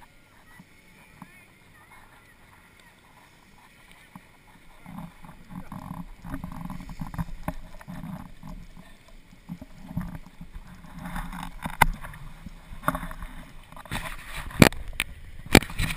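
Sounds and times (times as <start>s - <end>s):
sharp clicks and knocks: 9.5s - 15.9s.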